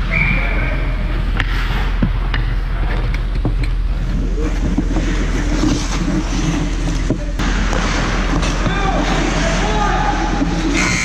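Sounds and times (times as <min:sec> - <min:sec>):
low rumble of ice hockey play: 0:00.0 - 0:11.0
sticks and skates scraping ice: 0:03.9 - 0:11.0.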